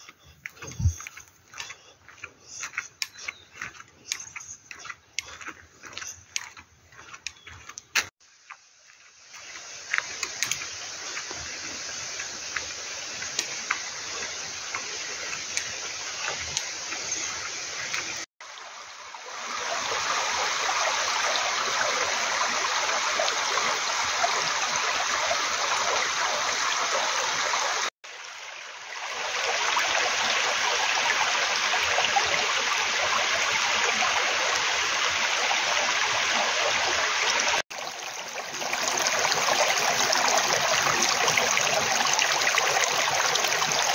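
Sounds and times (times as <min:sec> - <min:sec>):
stream water rushing over boulders: 0:09.3 - 0:43.9.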